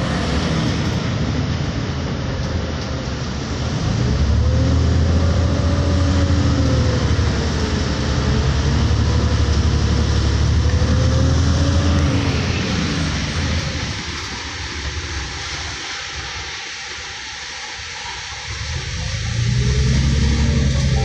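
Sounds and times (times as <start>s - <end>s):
faint drivetrain whine: 0.0s - 14.4s
bus engine rumble: 0.0s - 21.0s.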